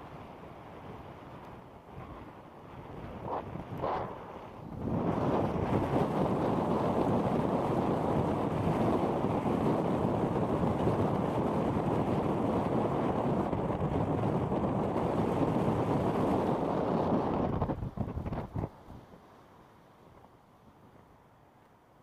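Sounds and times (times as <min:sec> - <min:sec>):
strong wind buffeting microphone: 0:00.0 - 0:19.1.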